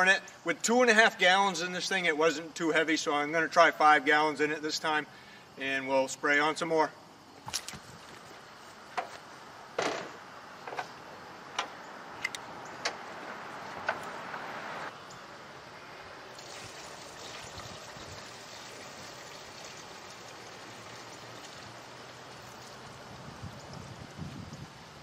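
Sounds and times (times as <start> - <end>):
knocks and clicks of handling sprayer: 9.8 - 10.9
liquid pouring into plastic tank: 16.3 - 22.8.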